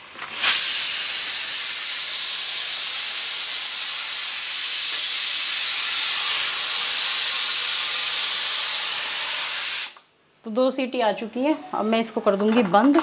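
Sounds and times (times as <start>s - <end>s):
pressure cooker whistle hissing steam: 0.0s - 10.1s.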